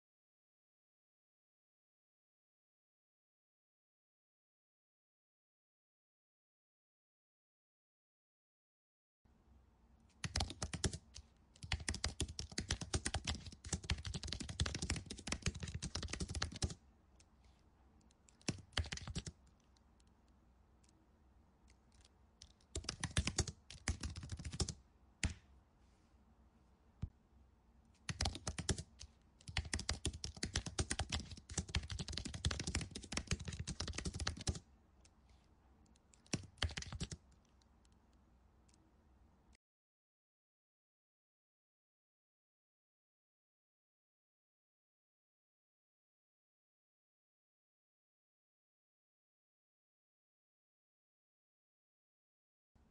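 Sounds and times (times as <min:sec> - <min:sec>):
keyboard typing: 0:10.1 - 0:17.4, 0:18.0 - 0:21.0, 0:21.7 - 0:25.4, 0:28.0 - 0:35.2, 0:35.9 - 0:38.0.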